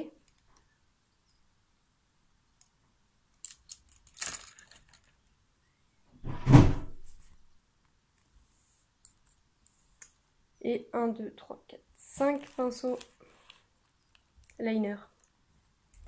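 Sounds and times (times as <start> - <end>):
loud thump: 6.2 - 7.1.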